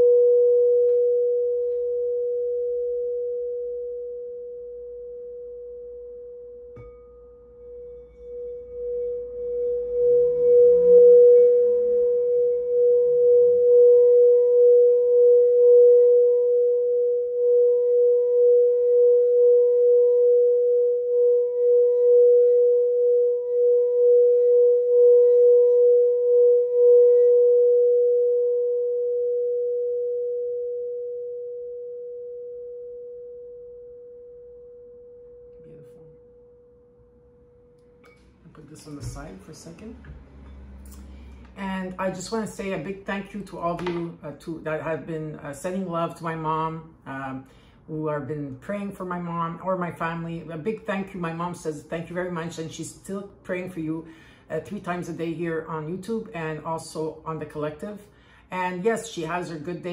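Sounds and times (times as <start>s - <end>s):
singing bowl ringing: 0.0s - 45.2s.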